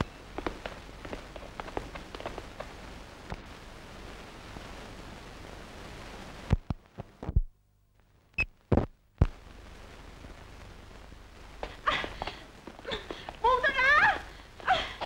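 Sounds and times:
film soundtrack hiss: 0:00.0 - 0:15.0.

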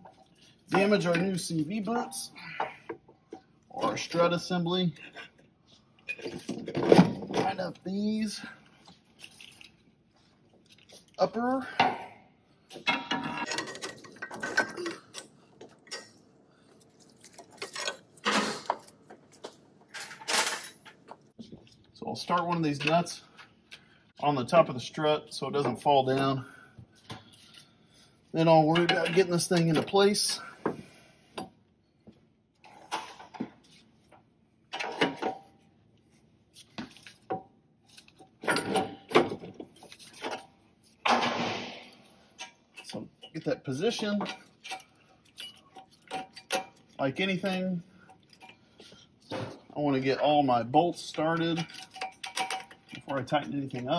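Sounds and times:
metal clanking and clicking: 0:12.7 - 0:16.2, 0:38.1 - 0:48.6, 0:51.4 - 0:53.4
metal clanks and knocks: 0:38.3 - 0:40.4, 0:51.4 - 0:53.4.

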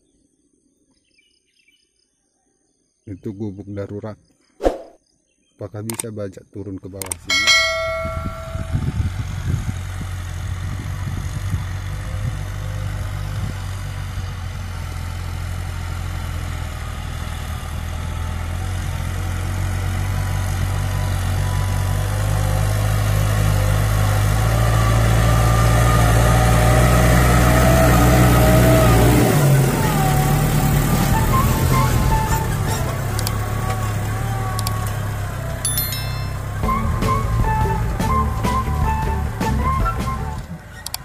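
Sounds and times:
tractor engine running: 0:07.0 - 0:41.0.

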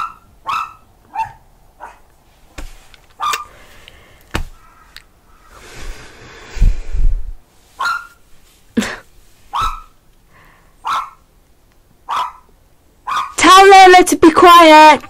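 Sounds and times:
dog barking: 0:00.0 - 0:02.0, 0:03.2 - 0:03.5, 0:07.8 - 0:08.2, 0:09.5 - 0:10.0, 0:10.8 - 0:11.3, 0:12.1 - 0:13.4.

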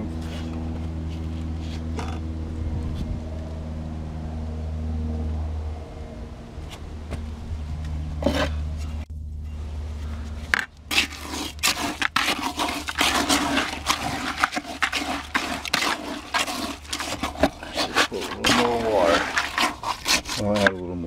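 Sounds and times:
concrete scraping and slopping: 0:08.2 - 0:09.1, 0:10.2 - 0:21.0.

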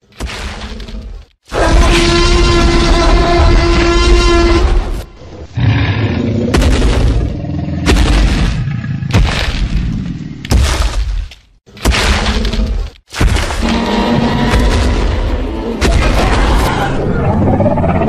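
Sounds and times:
horn-like roar with pitched tones: 0:01.6 - 0:05.1.

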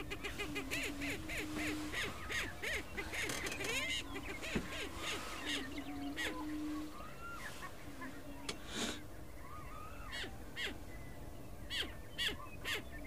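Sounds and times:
low booming bird hoots: 0:00.0 - 0:08.7
birds cackling and whooping: 0:00.0 - 0:13.0.

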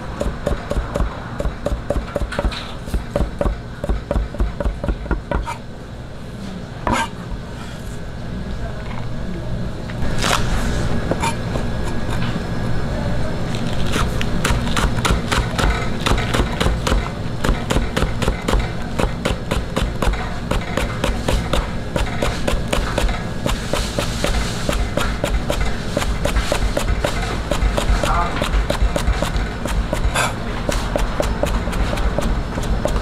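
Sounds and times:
cleaver chopping on cutting board: 0:00.2 - 0:05.6, 0:13.9 - 0:33.0.

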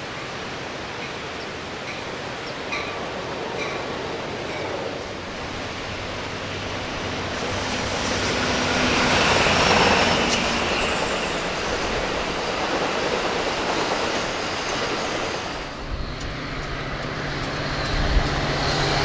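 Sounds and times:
train wheels on rails: 0:00.0 - 0:19.0.

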